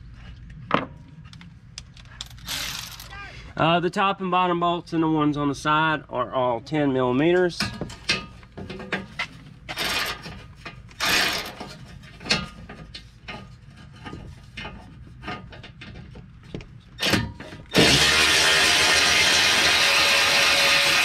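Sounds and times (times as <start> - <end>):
metal clanks rattles and scrapes: 7.6 - 17.8.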